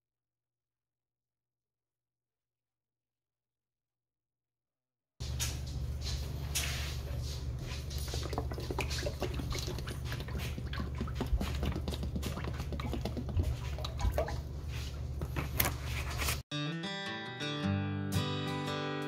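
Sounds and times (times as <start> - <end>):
oil pouring with glugs: 7.9 - 15.1
acoustic guitar music: 16.5 - 19.0.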